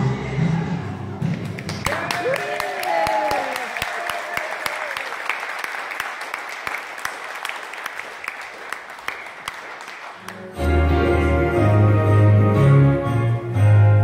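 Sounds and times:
audience applauding: 1.4 - 10.6.

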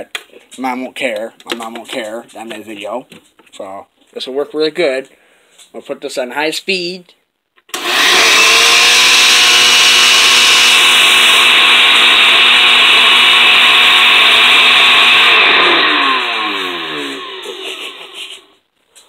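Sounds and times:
blender motor whining: 7.7 - 18.5.

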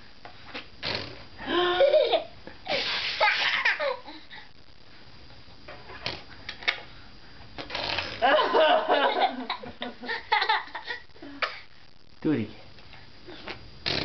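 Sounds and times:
baby blowing raspberries: 0.8 - 1.2, 2.7 - 3.4, 7.6 - 8.2, 13.3 - 14.0.

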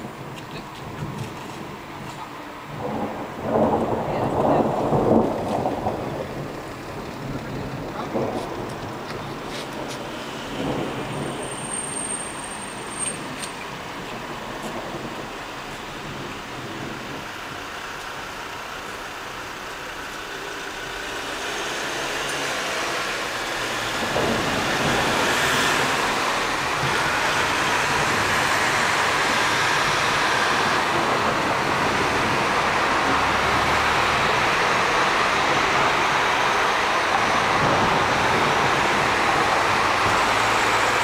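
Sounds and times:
rain and wind rushing: 0.0 - 41.0.

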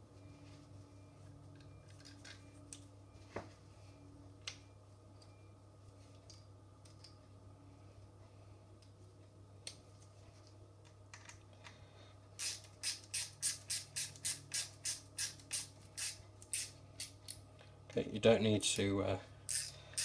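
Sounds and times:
small parts clicking: 12.4 - 17.4, 19.5 - 20.0.

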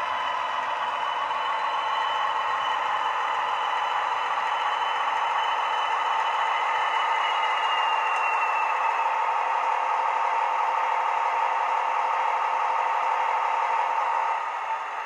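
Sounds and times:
turbo whistle: 4.5 - 9.4.

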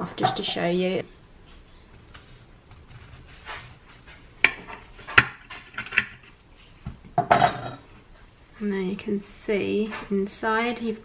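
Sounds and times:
knife cutting stuffed pepper: 2.0 - 4.3.

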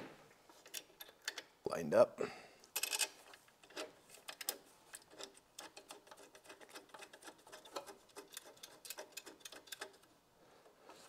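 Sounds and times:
small metal clicks and ticks: 0.6 - 1.5, 2.7 - 10.1.

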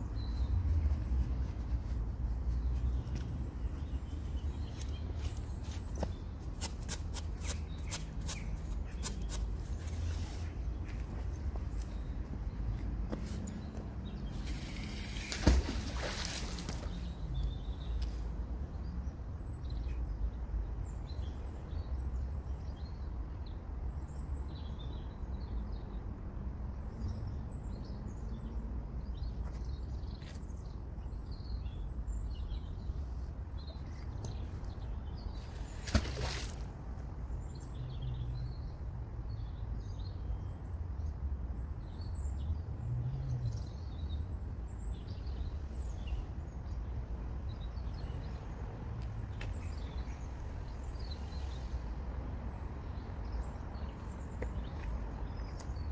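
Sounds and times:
magnet splashing into water: 14.5 - 17.0, 35.6 - 36.7.

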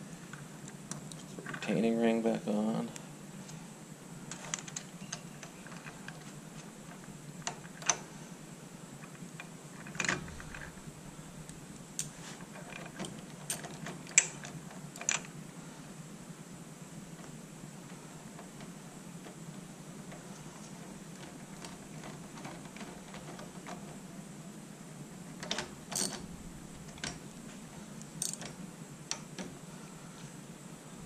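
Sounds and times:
low steady hum: 0.0 - 31.0
metallic clicks of hand tools: 28.2 - 28.5.

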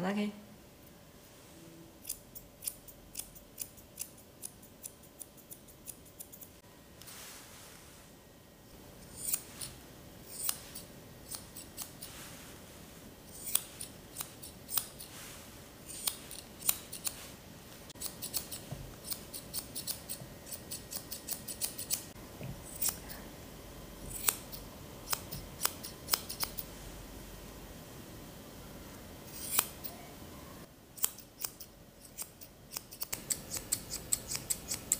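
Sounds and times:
shears snipping fur: 9.0 - 12.4, 13.3 - 23.1, 24.1 - 26.7, 29.3 - 30.0, 31.0 - 34.9.

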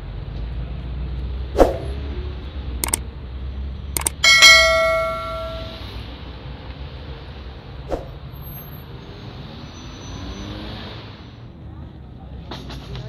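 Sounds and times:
city traffic rumble: 0.0 - 13.0
bell-like chime: 4.0 - 5.8.

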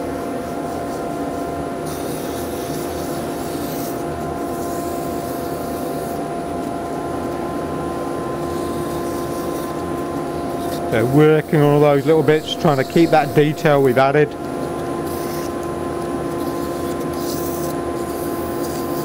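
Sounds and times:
wood lathe and dust extractor hum: 6.1 - 16.3
sanding hiss on spinning wood: 10.4 - 14.2.

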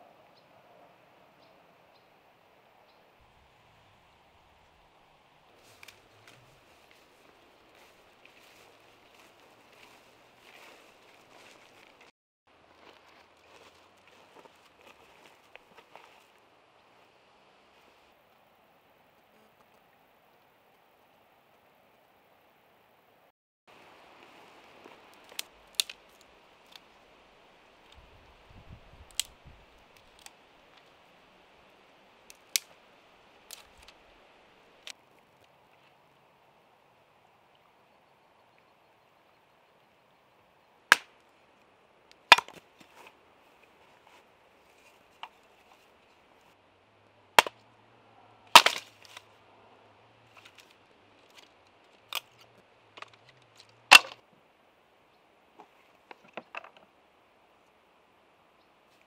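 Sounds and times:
split sticks clattering: 5.6 - 6.4, 25.1 - 26.8, 33.4 - 34.0, 40.9 - 41.2, 42.1 - 43.2, 48.5 - 49.3, 50.3 - 54.2
dry twigs snapping: 5.6 - 7.0, 24.8 - 26.9, 29.0 - 30.9, 32.3 - 32.8, 33.4 - 34.0, 40.9 - 41.3, 42.1 - 43.2, 47.4 - 47.6, 48.5 - 49.2, 50.3 - 54.2
hatchet chopping wood: 40.9 - 41.1, 42.3 - 42.6, 48.6 - 48.9, 53.9 - 54.2.

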